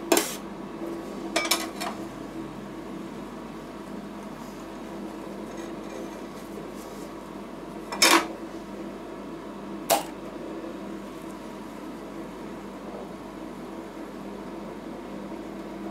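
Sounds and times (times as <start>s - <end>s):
refrigeration machine hum: 0.0s - 15.9s.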